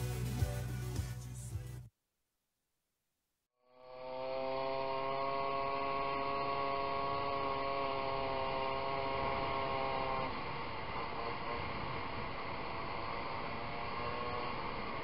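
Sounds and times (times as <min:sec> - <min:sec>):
moped engine buzzing: 0:03.6 - 0:15.0.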